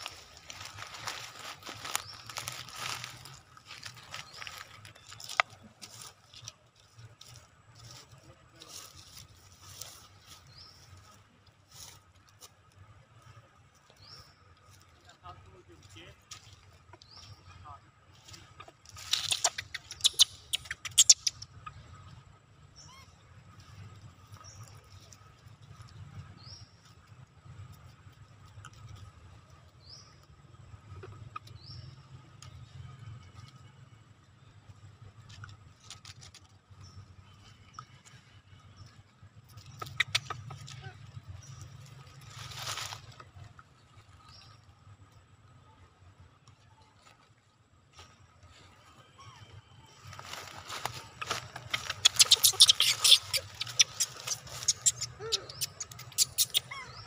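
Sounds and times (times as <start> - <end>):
dry leaves rustling: 0.0 - 21.3, 34.2 - 44.7, 49.5 - 57.0.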